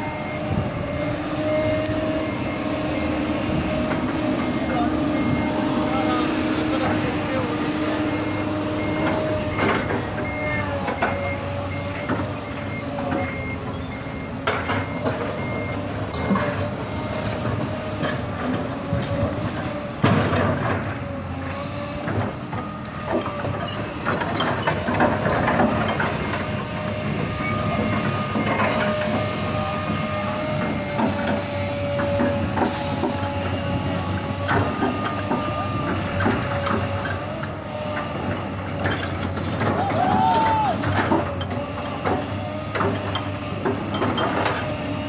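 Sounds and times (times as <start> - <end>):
excavator engine whine: 0.0 - 45.0
faint high beeps: 4.4 - 16.7.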